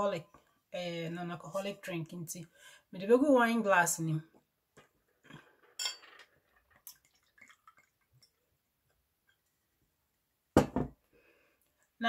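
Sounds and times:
drink pouring into glass: 5.6s - 8.5s
trickles and drips: 6.2s - 8.7s.

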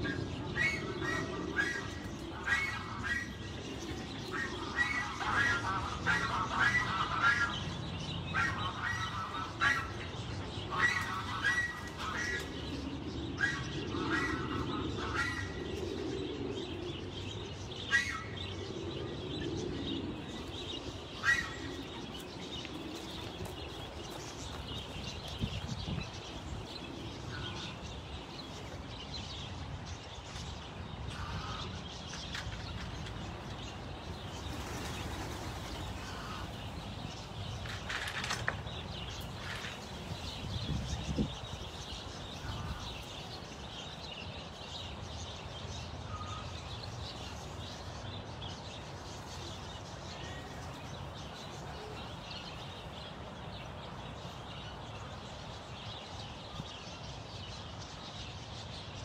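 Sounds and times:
birds chirping: 0.0s - 59.0s
doves' wings flapping: 21.6s - 27.0s, 32.1s - 41.0s.

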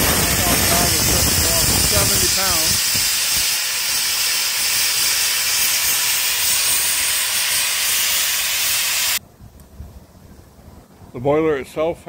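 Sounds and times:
steam venting hiss: 0.0s - 9.2s.

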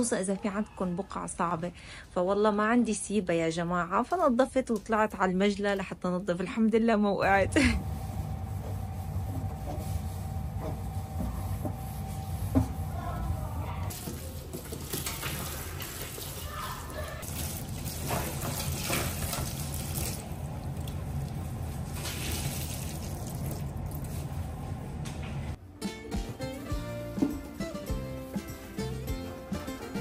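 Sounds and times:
water running from tap into sink: 17.2s - 20.2s.

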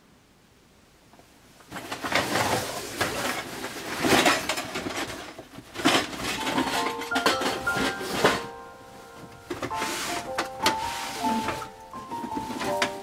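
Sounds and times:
camp gear rustling and clattering: 1.7s - 13.0s
background music with held notes: 6.2s - 13.0s.

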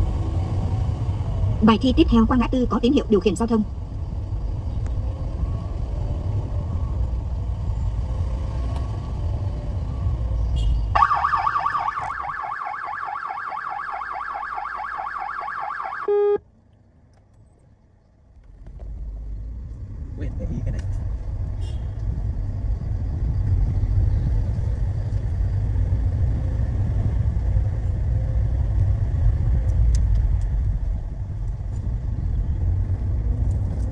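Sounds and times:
car engine and road rumble: 0.0s - 33.9s
electronic warbling alarm: 11.0s - 16.4s
short beep: 16.1s - 16.4s.

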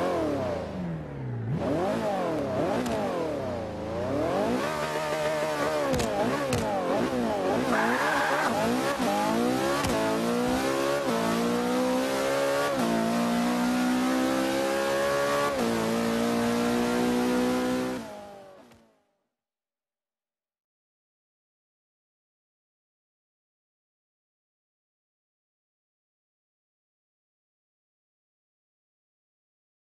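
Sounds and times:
sports car engine revving: 0.0s - 18.5s.

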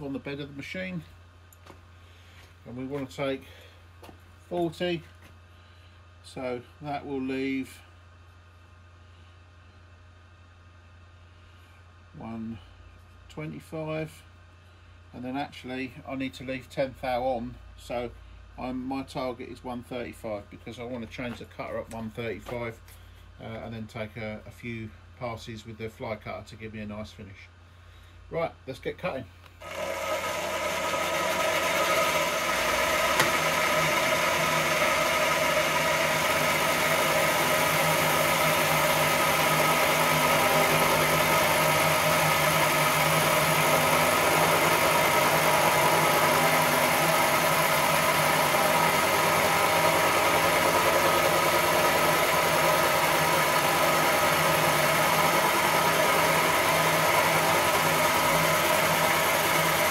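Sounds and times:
milling machine cutting metal: 29.6s - 59.9s.

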